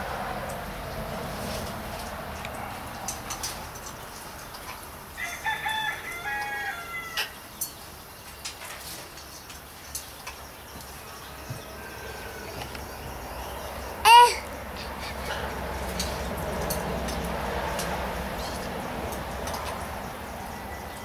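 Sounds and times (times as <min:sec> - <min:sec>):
rooster crowing: 0:05.2 - 0:07.4, 0:11.0 - 0:13.5, 0:20.2 - 0:21.0.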